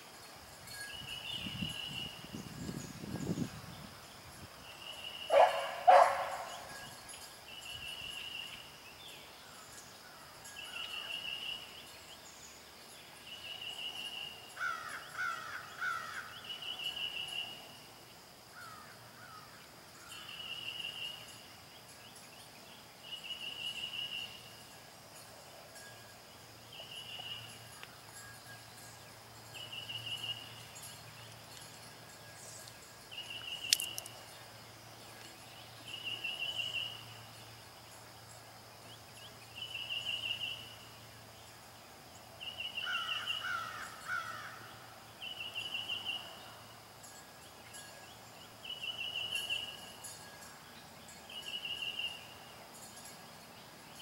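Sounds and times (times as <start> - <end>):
crow cawing: 14.6 - 16.3, 42.8 - 44.6.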